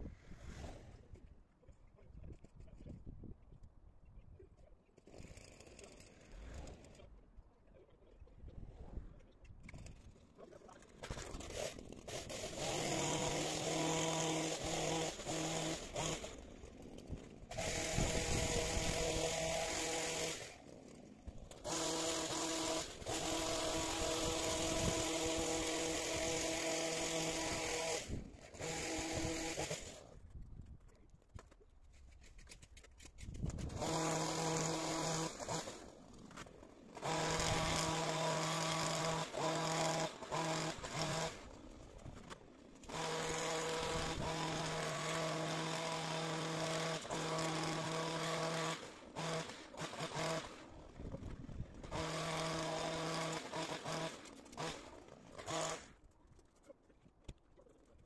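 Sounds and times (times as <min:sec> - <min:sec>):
hedge trimmer engine revving: 0:11.0 - 0:16.4, 0:17.5 - 0:20.6, 0:21.5 - 0:30.0, 0:33.5 - 0:35.9, 0:36.9 - 0:50.9, 0:51.8 - 0:56.0.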